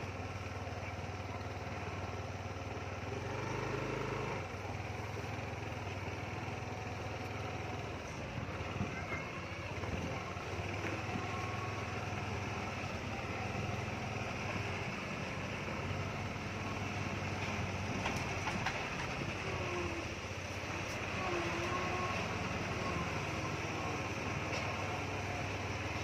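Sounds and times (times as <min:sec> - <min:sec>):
truck engines droning: 0:00.0 - 0:26.0.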